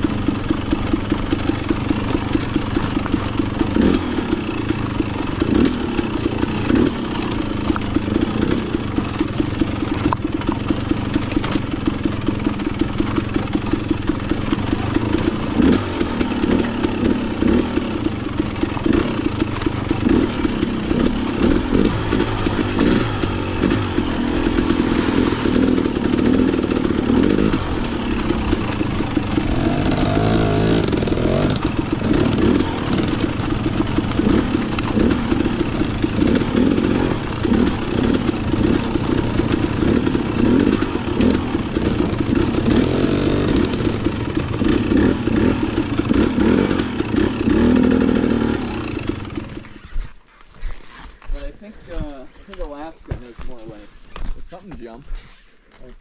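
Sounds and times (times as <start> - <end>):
motorcycle engine running: 0.0 - 55.1.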